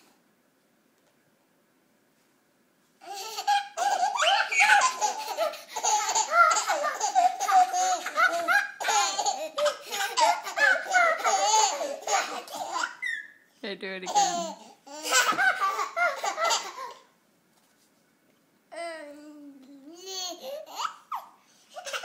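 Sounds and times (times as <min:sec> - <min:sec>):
baby laughing: 0:03.0 - 0:13.2, 0:14.1 - 0:17.1, 0:19.9 - 0:22.0.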